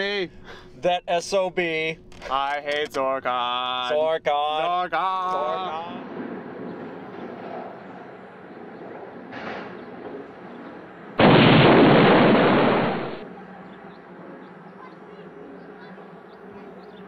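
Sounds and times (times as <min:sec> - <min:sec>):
faint wind: 0:00.0 - 0:17.0
loud explosion-like blast: 0:11.2 - 0:13.2.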